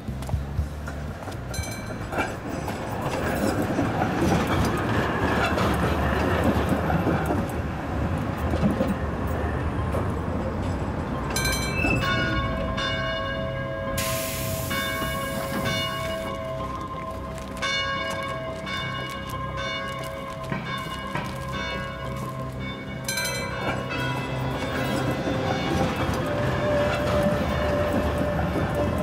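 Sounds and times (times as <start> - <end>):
tram rumbling along rails: 0.0 - 29.0
high squealing brakes: 10.5 - 12.7, 13.8 - 16.4.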